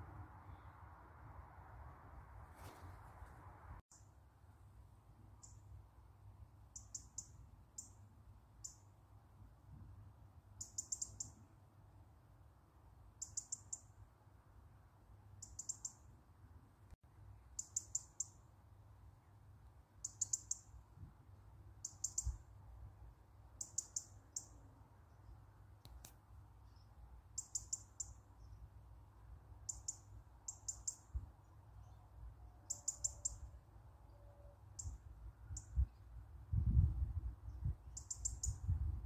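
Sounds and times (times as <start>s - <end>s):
robin calling: 6.7s - 8.0s, 10.6s - 11.4s, 13.2s - 13.9s, 15.4s - 16.1s, 17.6s - 18.4s, 20.0s - 20.8s, 21.8s - 22.4s, 23.6s - 24.6s, 26.6s - 28.7s, 29.6s - 33.6s, 37.5s - 38.7s.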